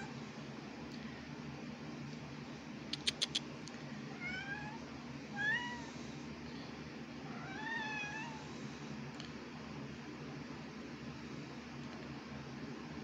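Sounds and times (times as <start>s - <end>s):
sharp clicks: 2.9s - 3.5s
cat meowing: 4.2s - 4.8s, 7.3s - 8.4s.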